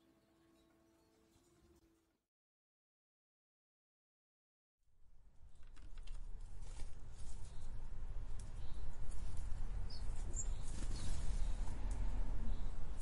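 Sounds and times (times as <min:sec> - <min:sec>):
wing flutters: 0:08.4 - 0:11.9
sparrow chirps: 0:09.8 - 0:11.6.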